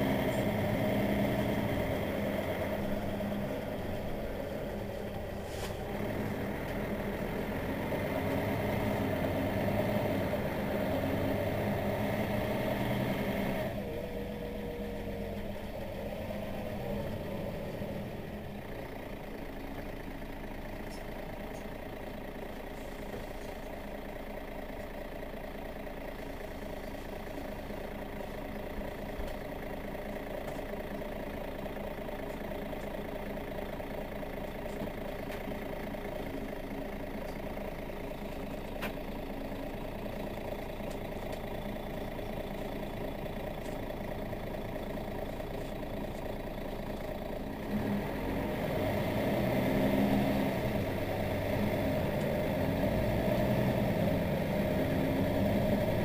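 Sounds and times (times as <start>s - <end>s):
bus engine idling: 0.0s - 56.0s.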